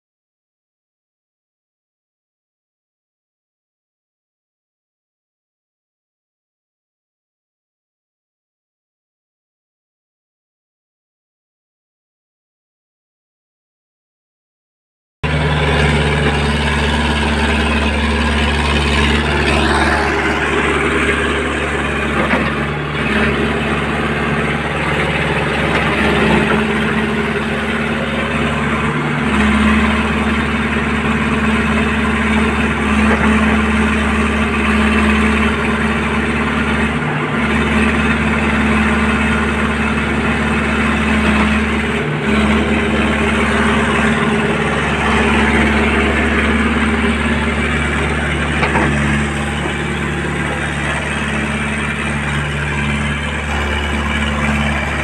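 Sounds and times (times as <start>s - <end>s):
excavator diesel engine running: 15.2s - 55.0s.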